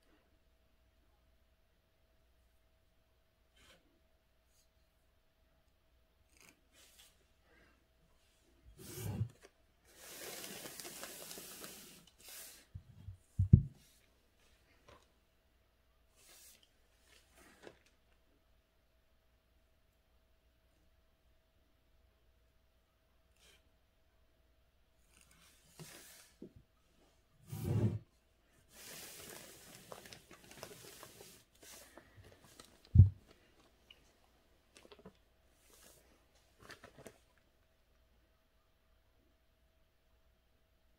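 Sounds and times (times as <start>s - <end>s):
rubbing hiss: 9.9s - 12.9s
soft rustling and handling: 16.2s - 18.3s, 25.0s - 37.7s.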